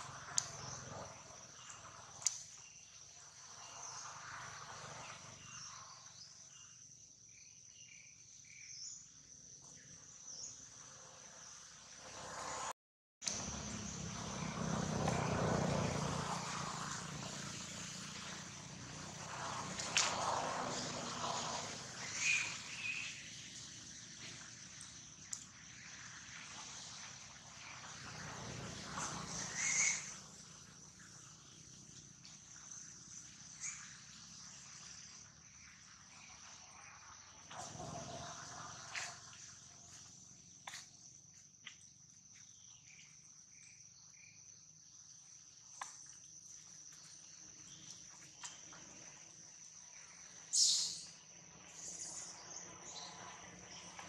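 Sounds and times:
insects chirring: 0:00.0 - 0:54.0
engine drone: 0:11.8 - 0:40.9.

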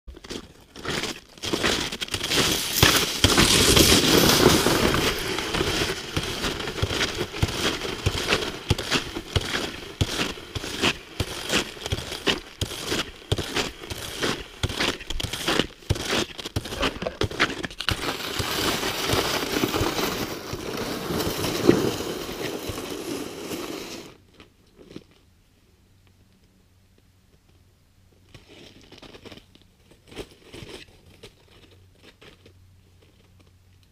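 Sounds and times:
footsteps crunching on snow: 0:00.1 - 0:24.1.

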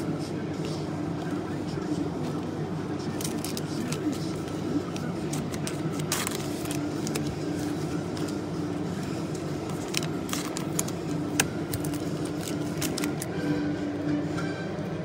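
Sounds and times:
steady low hum: 0:00.0 - 0:15.0
trading cards clicking and scraping: 0:03.1 - 0:13.3.

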